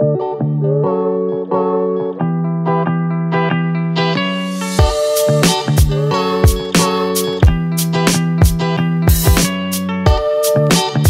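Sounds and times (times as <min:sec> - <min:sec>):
music with drum beat: 0:04.5 - 0:11.0.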